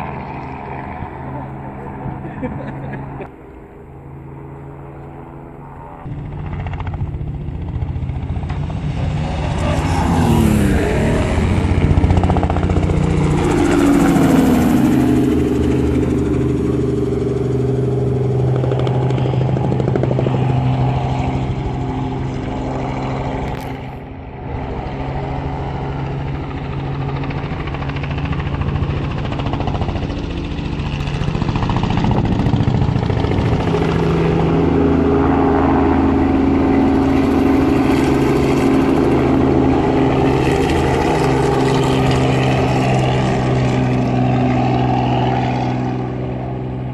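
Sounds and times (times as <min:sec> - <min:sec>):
helicopter rotor and engine drone: 0:00.0 - 0:46.9
engine notes sweeping down: 0:06.0 - 0:19.4.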